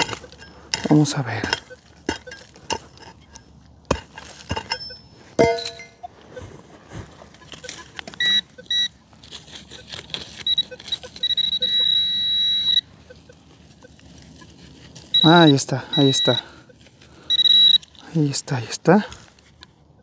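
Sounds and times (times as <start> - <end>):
metal detector beeping: 0.0 - 3.5, 4.5 - 18.6
digging tool scraping soil: 0.0 - 5.0, 6.4 - 12.0.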